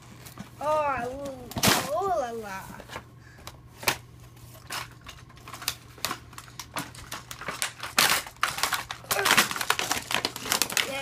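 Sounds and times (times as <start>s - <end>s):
plastic packaging clicking and crinkling: 2.7s - 11.0s.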